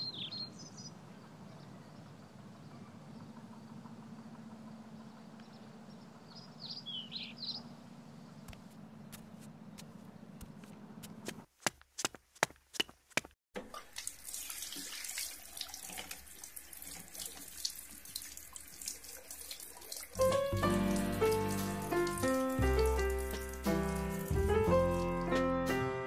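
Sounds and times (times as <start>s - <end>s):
tap water running into sink: 13.6s - 25.0s
music: 20.2s - 26.0s.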